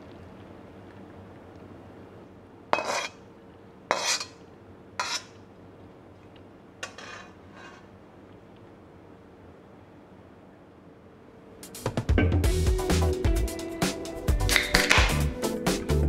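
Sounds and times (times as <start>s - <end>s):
metal spatula scraping wok: 2.8s - 3.2s, 3.9s - 4.4s, 5.0s - 5.4s, 6.8s - 7.9s.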